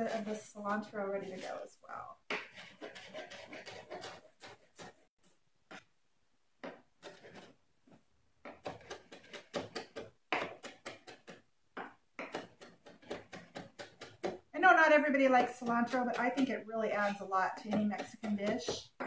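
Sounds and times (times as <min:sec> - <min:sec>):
knife chopping on cutting board: 0:08.4 - 0:14.4.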